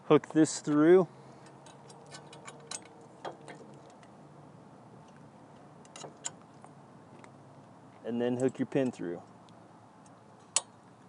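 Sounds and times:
metallic clicks of hitch pin: 1.4s - 4.1s, 10.0s - 10.8s.

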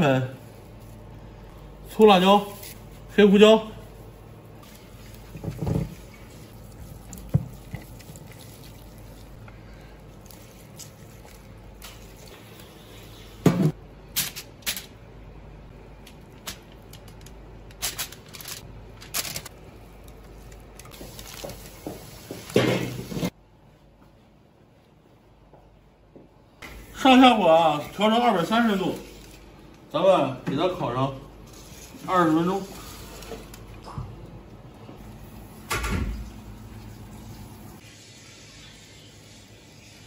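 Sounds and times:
wet squishing of meat: 4.6s - 9.4s
aluminium foil rustling: 16.3s - 23.3s.

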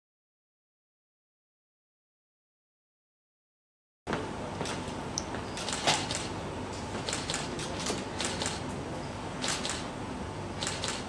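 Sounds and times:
camera shutter clicking: 5.6s - 6.3s, 7.1s - 8.6s, 9.4s - 9.8s, 10.6s - 11.0s.

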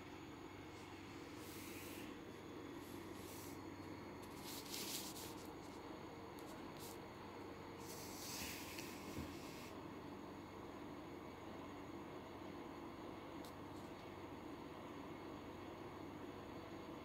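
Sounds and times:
faint room hum: 0.0s - 17.0s
rustling rubbing noises: 4.2s - 5.8s.

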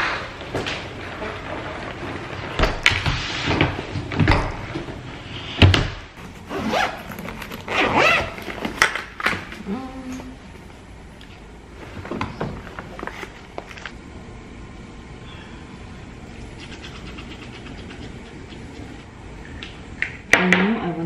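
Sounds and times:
suitcase zipper pulled: 6.5s - 8.4s.

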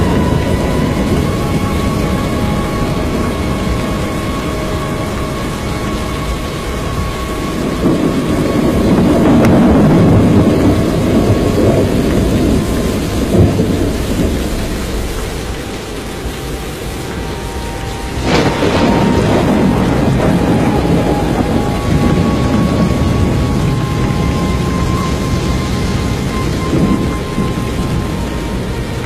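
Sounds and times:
storm wind rumble: 0.0s - 29.0s
sharp thunder crack: 6.2s - 15.5s, 18.2s - 28.0s.

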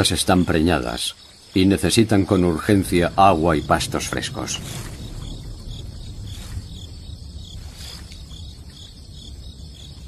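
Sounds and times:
insects chirping: 0.0s - 10.0s
low outdoor rumble: 0.0s - 10.0s.

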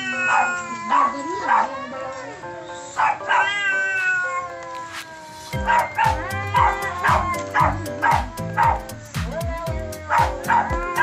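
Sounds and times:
cats yowling: 0.0s - 11.0s
music with thumping beat: 5.5s - 11.0s.

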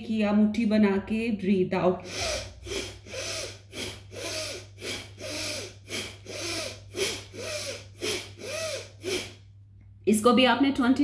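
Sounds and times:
woman breathing forcefully through nose: 2.0s - 9.5s.

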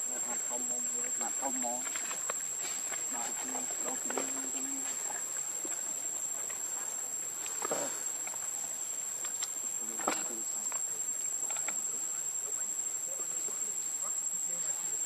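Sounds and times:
faint voices: 0.0s - 8.8s, 9.5s - 15.0s
high-pitched insect drone: 0.0s - 15.0s.

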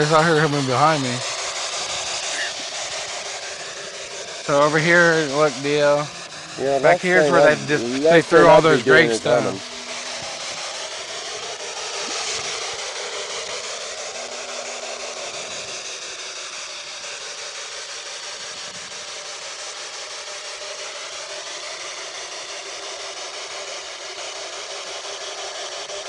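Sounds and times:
steady hiss: 0.0s - 26.0s
faint wavering tones: 3.3s - 13.5s.

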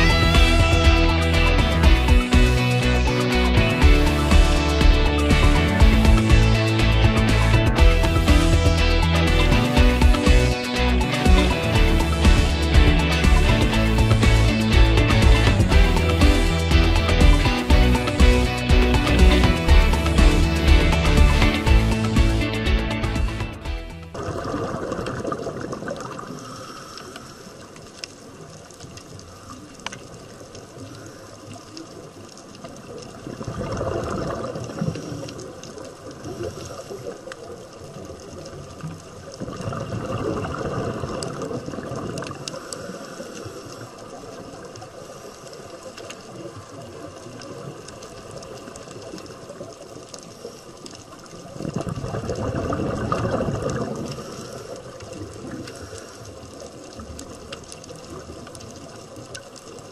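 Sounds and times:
underwater rushing surge: 0.0s - 59.9s
underwater hiss: 24.2s - 32.1s, 33.4s - 59.9s.

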